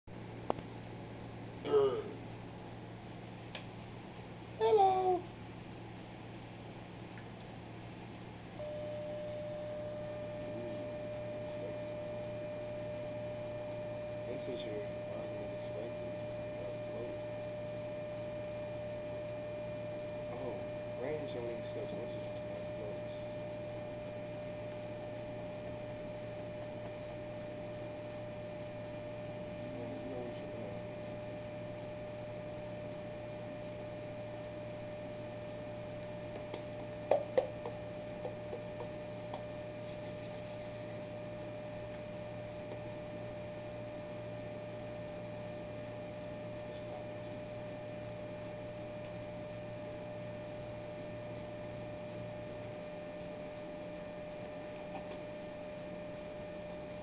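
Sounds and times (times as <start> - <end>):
electrical hum: 0.0 - 57.0
held tone: 8.6 - 46.1.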